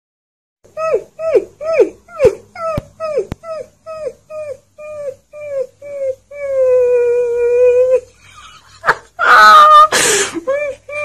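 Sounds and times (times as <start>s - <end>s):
puppy howling: 0.7s - 8.1s.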